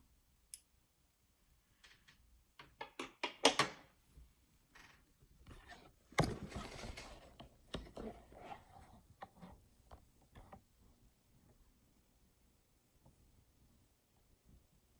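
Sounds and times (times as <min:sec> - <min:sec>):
recording device handling noise: 0:04.6 - 0:10.9.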